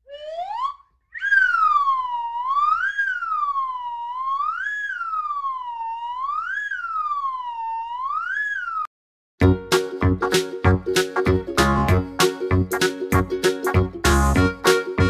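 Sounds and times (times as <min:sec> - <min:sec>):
electronic siren wailing: 0:00.0 - 0:08.9.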